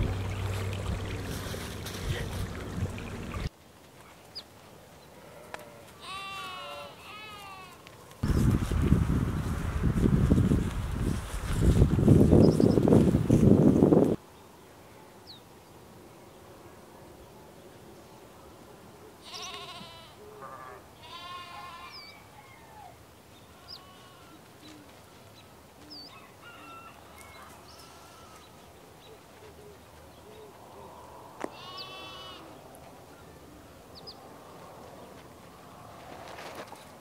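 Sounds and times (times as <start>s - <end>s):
sheep and goats bleating: 5.2s - 7.9s, 19.2s - 22.2s, 23.4s - 25.2s, 27.2s - 28.7s, 31.4s - 32.6s.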